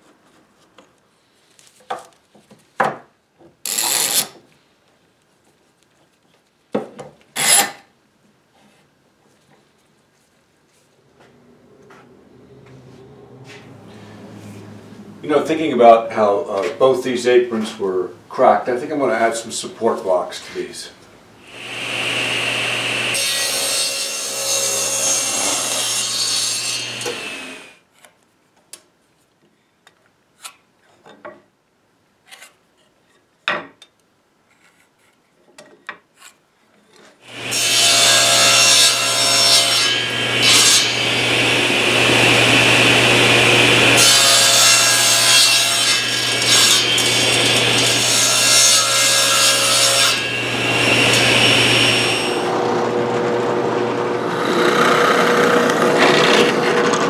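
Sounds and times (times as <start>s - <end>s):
table saw cutting wood: 3.7s - 4.4s, 7.4s - 7.8s, 21.4s - 27.8s, 37.2s - 57.0s.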